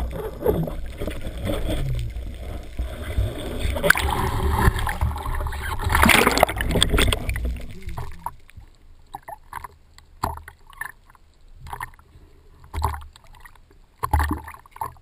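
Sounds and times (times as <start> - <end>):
small waves splashing: 0.0 - 12.0.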